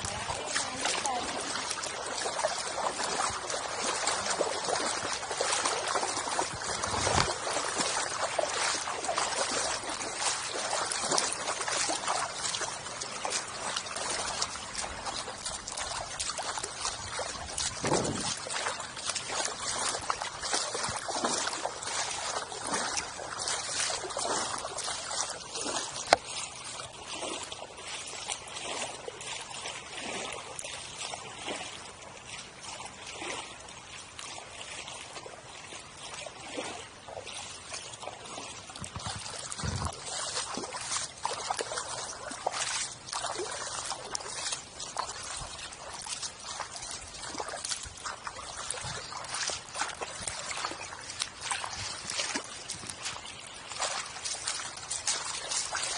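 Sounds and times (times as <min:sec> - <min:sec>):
footsteps splashing in water: 0:00.0 - 0:55.9.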